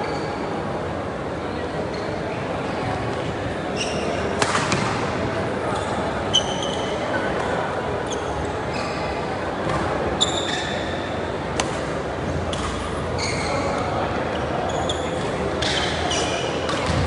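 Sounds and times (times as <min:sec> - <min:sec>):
murmur of voices: 0:00.0 - 0:17.0
shoes squeaking on court: 0:03.7 - 0:04.9, 0:05.6 - 0:07.2, 0:08.0 - 0:11.2, 0:12.4 - 0:17.0
racket striking shuttlecock: 0:04.4 - 0:04.9.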